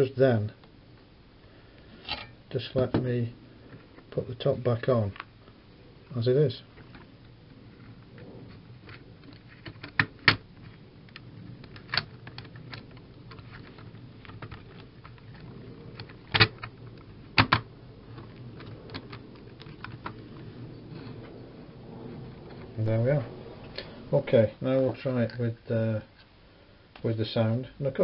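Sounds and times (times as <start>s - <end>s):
hard plastic clicking and tapping: 8.9s - 10.4s, 17.4s - 20.2s.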